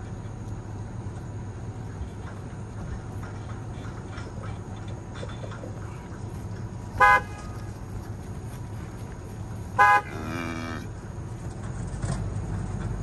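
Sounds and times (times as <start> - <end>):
truck engine running: 0.0 - 13.0
truck horn toot: 7.0 - 7.7, 9.8 - 10.8.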